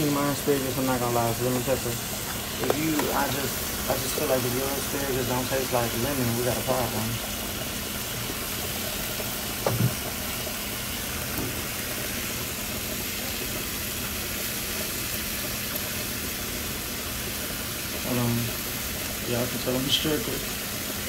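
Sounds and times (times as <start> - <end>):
asparagus sizzling in butter: 0.0 - 21.0
brief thump: 9.6 - 10.0.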